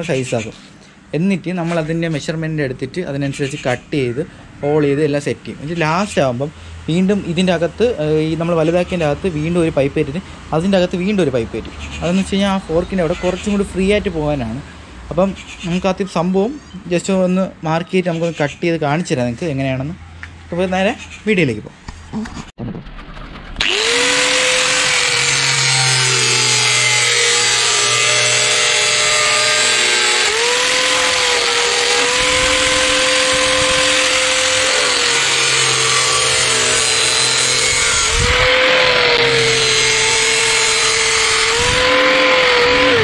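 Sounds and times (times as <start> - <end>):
angle grinder cutting plastic pipe: 23.6 - 43.0.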